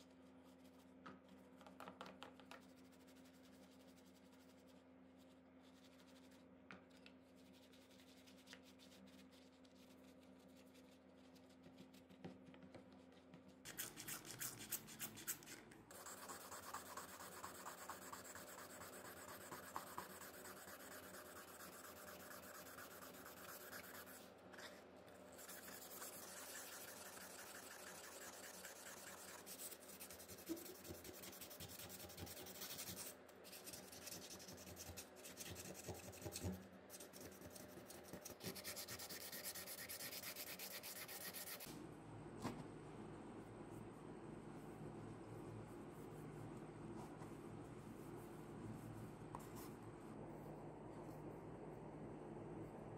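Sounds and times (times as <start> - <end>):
sandpaper rubbing: 25.4 - 36.2.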